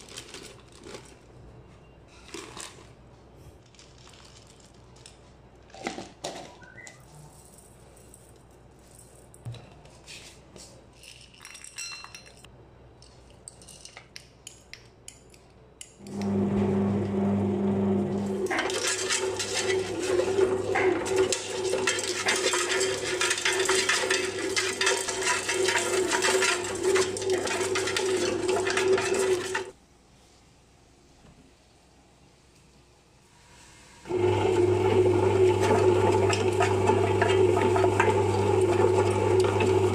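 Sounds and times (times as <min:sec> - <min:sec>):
nuts rattling in dough pan: 0:18.5 - 0:29.8
seeds clinking in steel bowl: 0:18.5 - 0:29.8
bread machine motor humming: 0:34.1 - 0:39.9.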